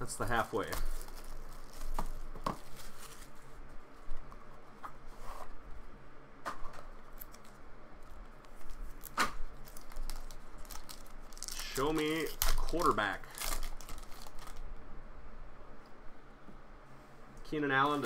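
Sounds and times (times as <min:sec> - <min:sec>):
rustling card packaging: 0:00.1 - 0:05.6, 0:06.6 - 0:14.7, 0:17.8 - 0:18.0.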